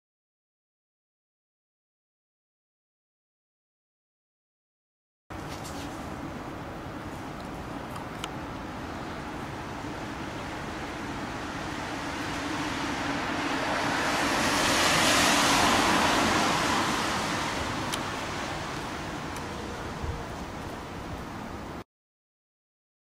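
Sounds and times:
steady background hiss: 5.3s - 21.8s
car tyres hissing on wet road: 11.0s - 19.3s.

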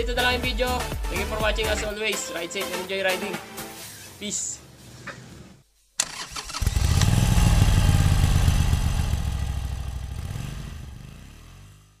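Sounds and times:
motorcycle engine running fast: 6.6s - 12.0s.

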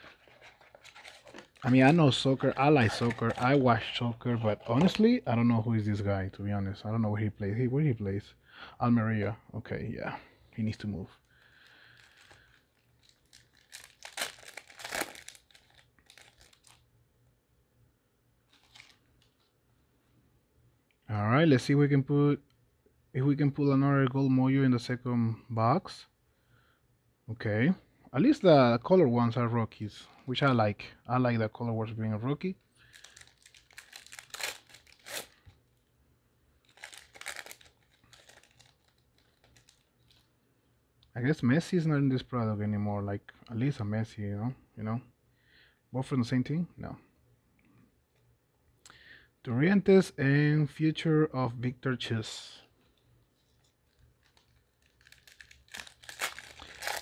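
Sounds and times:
plastic wrapper crinkling and tearing: 0.0s - 5.2s, 10.8s - 16.9s, 18.5s - 19.5s, 32.8s - 35.9s, 36.6s - 40.3s, 52.9s - 57.0s
faint handling: 0.0s - 5.7s.

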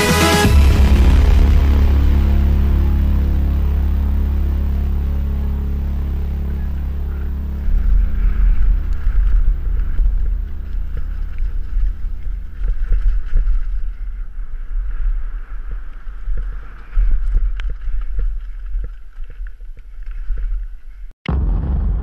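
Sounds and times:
wind buffeting microphone: 6.4s - 22.0s.

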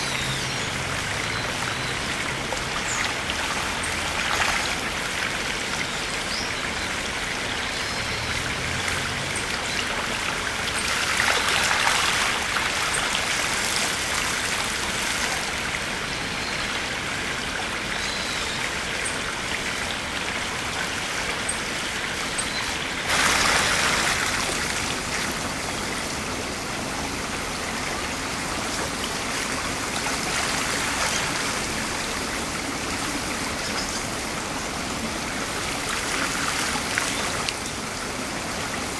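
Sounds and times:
river rushing over stones: 0.0s - 38.9s
water spilling over well rim: 8.2s - 16.0s, 19.5s - 26.3s.

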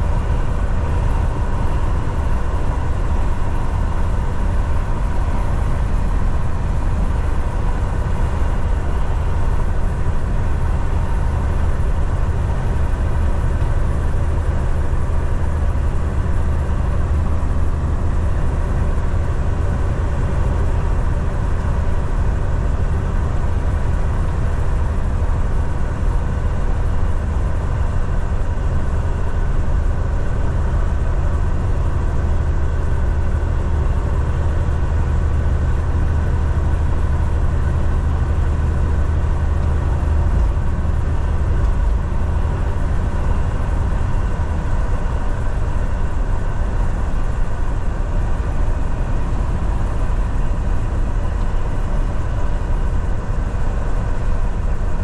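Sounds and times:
truck diesel engine drone: 0.0s - 55.0s
road noise: 36.0s - 54.9s.

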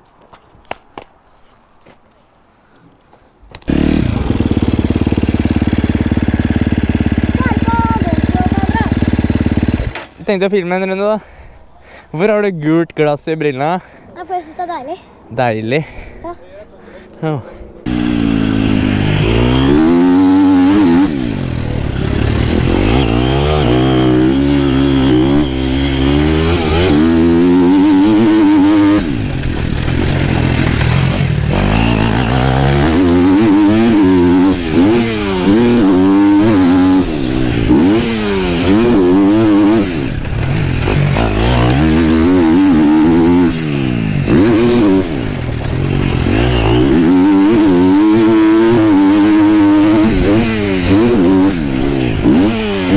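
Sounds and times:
motocross bike engine revving: 3.7s - 10.3s, 17.8s - 52.9s.

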